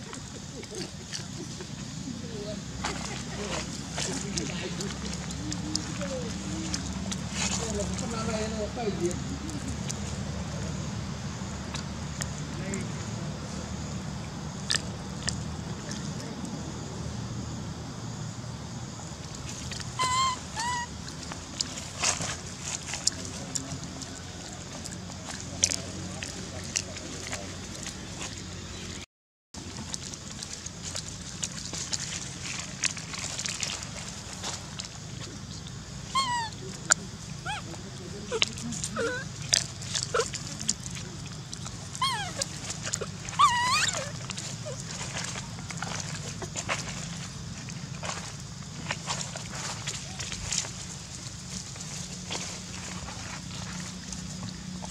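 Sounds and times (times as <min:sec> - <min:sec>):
steady outdoor hiss: 0:00.0 - 0:29.0, 0:29.6 - 0:54.9
monkey squeaky calls: 0:19.9 - 0:21.0, 0:36.1 - 0:36.6, 0:37.4 - 0:37.7, 0:38.3 - 0:39.3, 0:40.0 - 0:40.4, 0:41.9 - 0:44.8.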